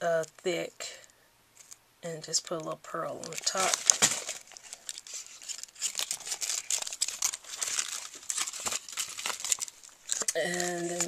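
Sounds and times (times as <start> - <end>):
paper pages rustling: 3.1 - 11.0.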